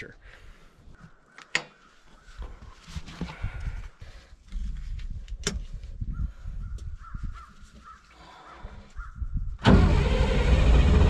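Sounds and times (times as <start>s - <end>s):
diesel engine cranking on starter: 9.6s - 11.0s
diesel engine running: 9.6s - 11.0s.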